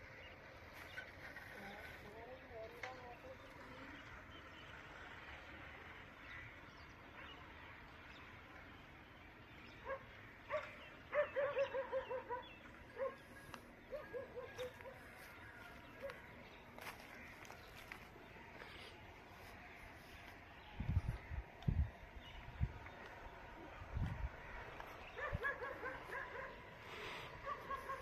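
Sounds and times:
faint outdoor background: 0.0s - 28.0s
dog barking: 9.8s - 13.2s, 13.9s - 15.0s, 25.2s - 26.6s, 27.4s - 28.0s.

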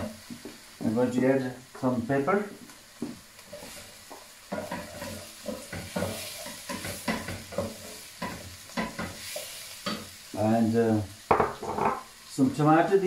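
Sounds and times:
onion and garlic sizzling: 0.0s - 13.0s
spoon scraping and knocking pan: 3.5s - 10.1s, 11.3s - 12.1s.

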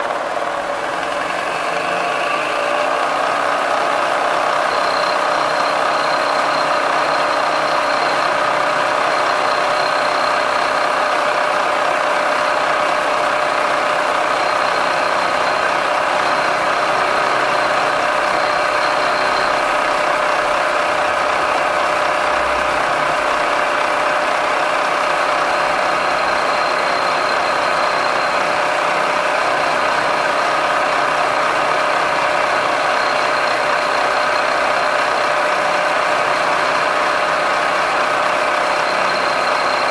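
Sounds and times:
milling machine cutting metal: 0.5s - 10.8s.

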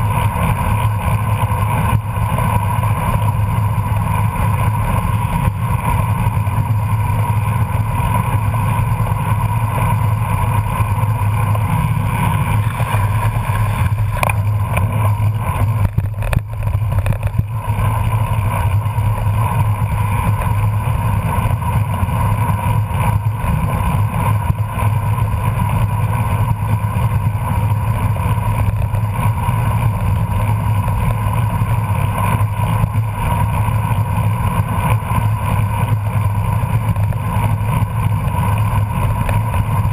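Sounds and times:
bicycle road noise: 0.0s - 39.9s
wind rush: 10.2s - 19.1s.

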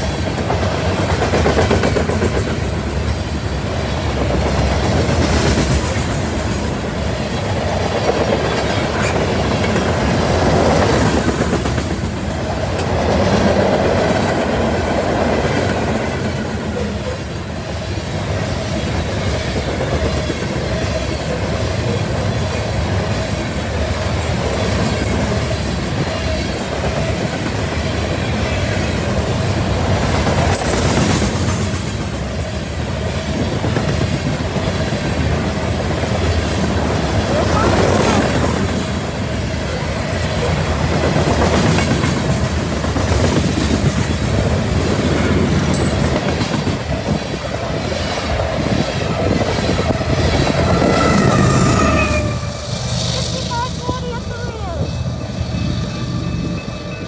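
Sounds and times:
freight train rolling past: 0.0s - 57.0s
wheels clacking on rails: 0.0s - 57.0s.

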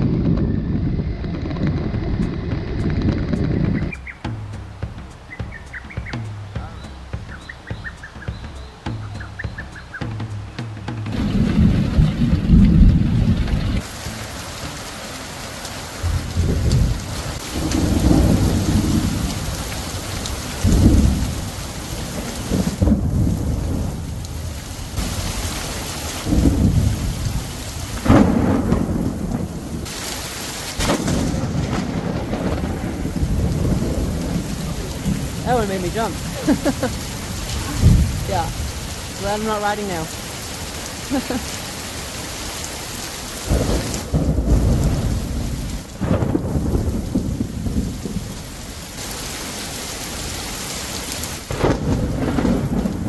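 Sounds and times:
heavy rain: 0.0s - 53.0s
thunder rumbling: 0.0s - 53.0s.

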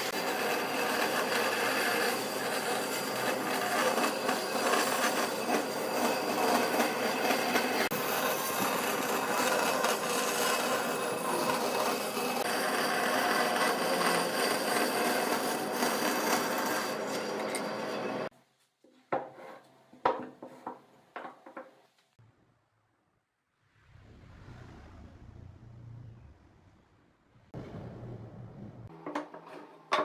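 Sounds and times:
band saw cutting wood: 0.0s - 18.3s.

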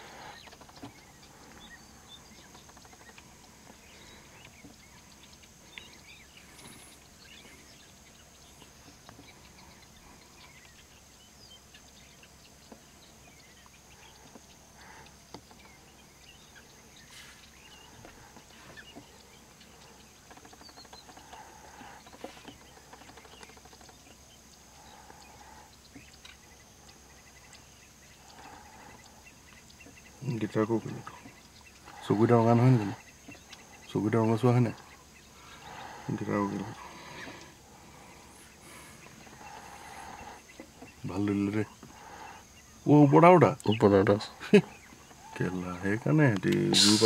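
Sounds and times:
distant small birds chirping: 0.0s - 47.0s
steady high-pitched hum: 46.4s - 47.0s.

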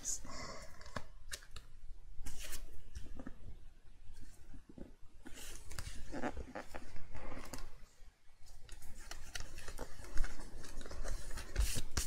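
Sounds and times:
paper rustling and crinkling: 4.1s - 12.0s.

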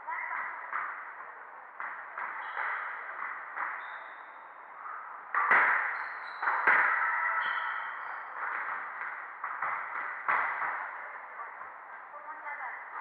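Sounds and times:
squash ball struck hard: 5.3s - 7.1s
shoes squeaking on wooden floor: 5.8s - 8.7s.

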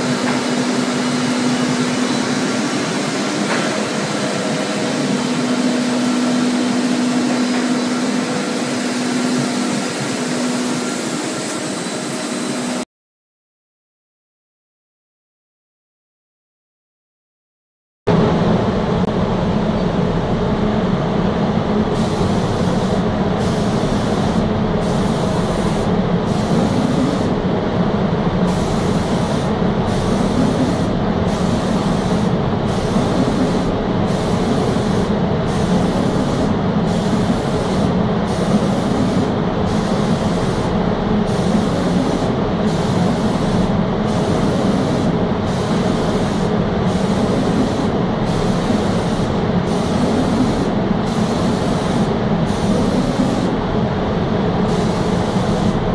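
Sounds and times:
machinery hum: 0.0s - 12.8s, 18.1s - 55.9s
spray gun air hiss: 22.0s - 27.4s, 28.4s - 53.6s, 54.6s - 55.9s.

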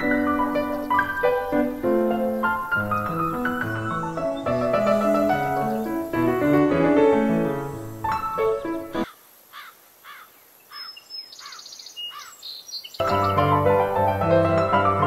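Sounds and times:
bird trilling song: 0.0s - 6.4s, 9.6s - 13.5s
piano music: 0.0s - 9.1s, 13.0s - 15.0s
songbirds chirping: 0.0s - 15.0s.

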